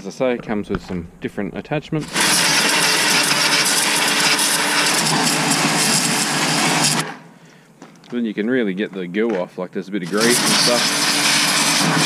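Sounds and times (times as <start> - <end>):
pressure washer pump running: 0.4 - 7.1, 10.1 - 12.0.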